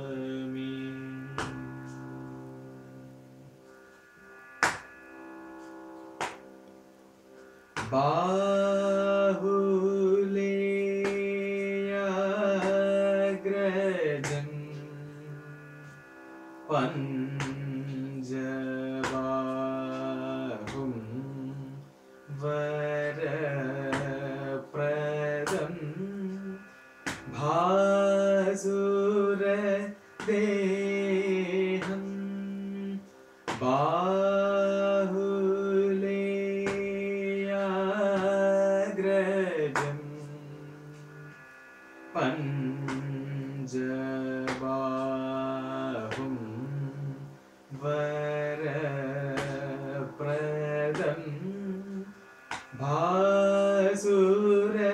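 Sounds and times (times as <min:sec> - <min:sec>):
man singing: 0:00.0 - 0:02.0, 0:07.8 - 0:15.6, 0:16.7 - 0:41.3, 0:42.1 - 0:54.9
hand tapping on thigh: 0:01.4 - 0:01.6, 0:04.6 - 0:04.9, 0:06.2 - 0:06.4, 0:07.8 - 0:08.0, 0:14.2 - 0:14.5, 0:17.4 - 0:17.6, 0:20.6 - 0:20.9, 0:25.4 - 0:25.7, 0:27.0 - 0:27.5, 0:31.8 - 0:32.0, 0:33.5 - 0:33.8, 0:36.6 - 0:36.9, 0:39.7 - 0:40.0, 0:44.5 - 0:44.8, 0:49.4 - 0:49.6, 0:52.5 - 0:52.8.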